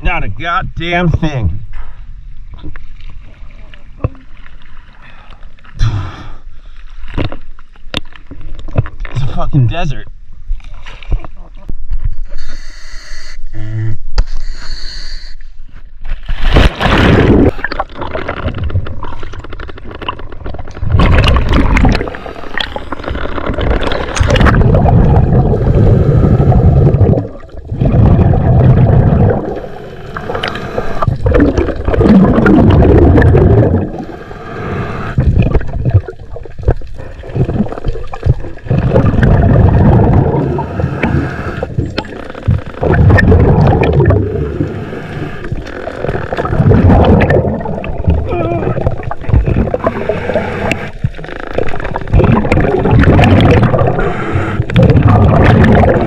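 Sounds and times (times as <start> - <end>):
underwater gurgling: 16.3 - 56.0.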